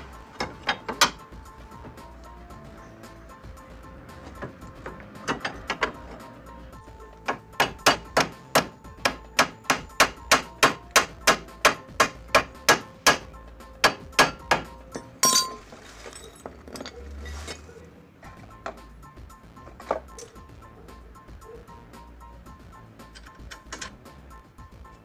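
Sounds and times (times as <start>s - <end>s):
hammer striking steel: 0.4s - 1.3s, 4.3s - 6.4s, 7.2s - 15.6s
loud metallic clatter: 4.4s - 6.3s.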